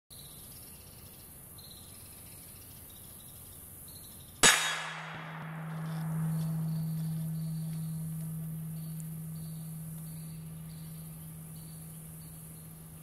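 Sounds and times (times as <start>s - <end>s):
insects chirping faintly: 0.1s - 4.4s, 5.0s - 13.0s
low steady hum: 4.4s - 13.0s.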